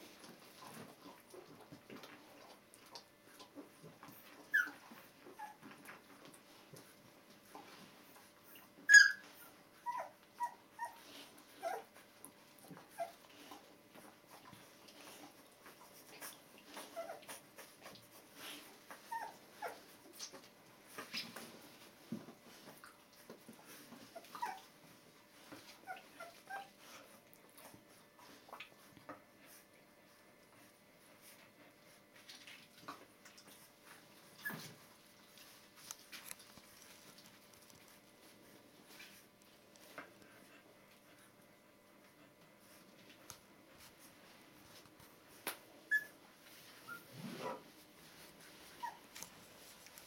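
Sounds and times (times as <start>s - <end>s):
puppies whimpering and squeaking: 3.4s - 21.6s, 22.5s - 28.8s, 33.4s - 34.9s, 45.8s - 47.6s, 48.5s - 50.0s
puppies whimpering: 4.0s - 6.0s, 8.4s - 12.1s, 15.2s - 20.4s, 23.6s - 24.8s, 45.9s - 46.2s
soft rustles and clicks: 9.3s - 50.0s.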